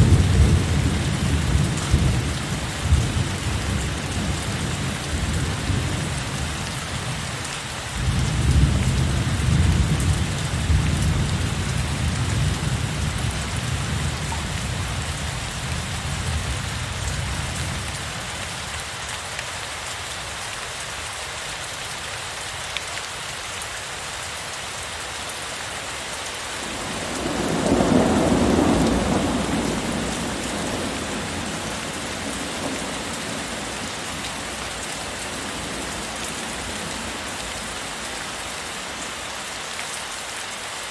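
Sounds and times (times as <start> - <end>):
thunder rumbling: 0.0 - 6.0, 26.6 - 38.0
heavy rain falling: 0.0 - 40.9.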